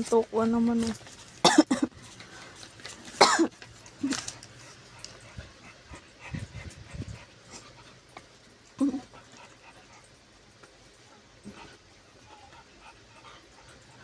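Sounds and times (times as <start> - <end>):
person coughing: 1.4 - 1.9, 3.2 - 4.2
dogs grunting softly: 1.9 - 14.0.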